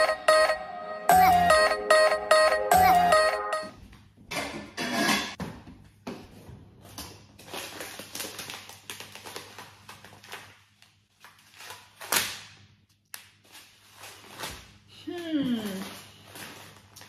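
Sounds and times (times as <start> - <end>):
plastic packet crinkling: 7.4 - 12.2.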